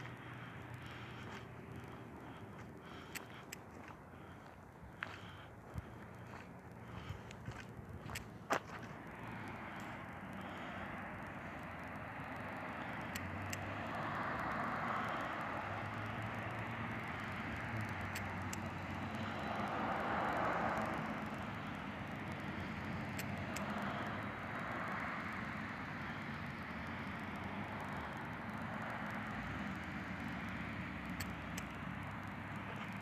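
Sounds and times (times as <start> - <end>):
low hum: 0.0 - 24.8
faint ticks: 0.0 - 33.0
road traffic rush: 0.0 - 33.0
vehicles passing: 0.0 - 33.0.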